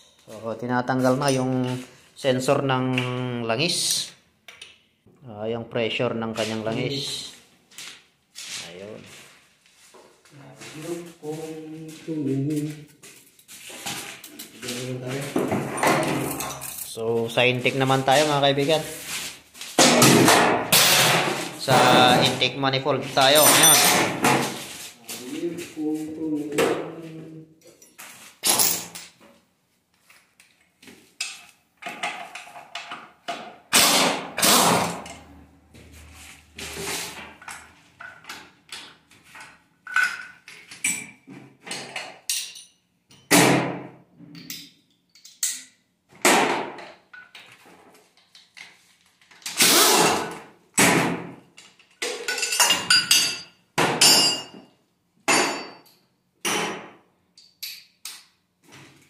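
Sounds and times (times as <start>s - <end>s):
tools and metal parts clanking: 13.7s - 17.0s, 23.2s - 24.7s, 27.6s - 29.2s, 37.2s - 43.3s, 44.3s - 45.8s, 51.6s - 54.7s.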